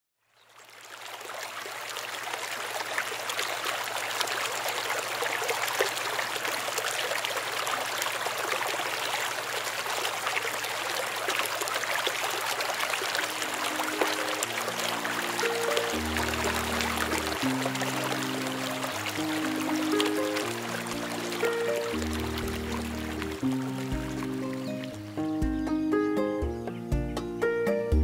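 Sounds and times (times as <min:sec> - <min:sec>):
water pouring into a basin: 0:00.3 - 0:25.0.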